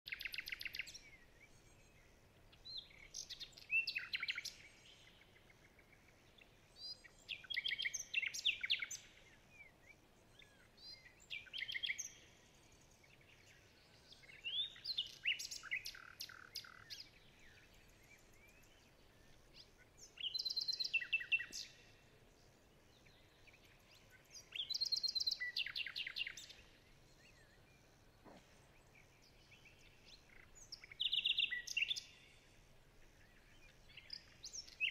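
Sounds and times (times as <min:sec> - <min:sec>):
bird chirps and trills: 0:13.5 - 0:22.0, 0:23.0 - 0:34.9.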